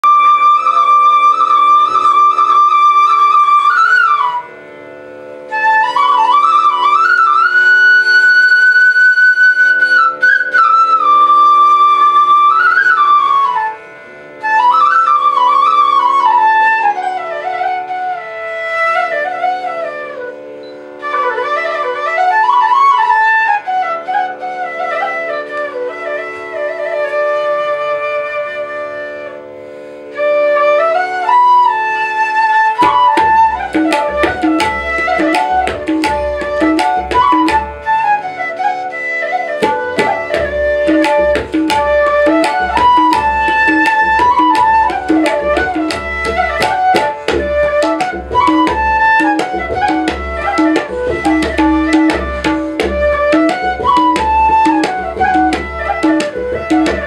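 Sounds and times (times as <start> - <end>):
bamboo flute melody: 0.0 - 57.0.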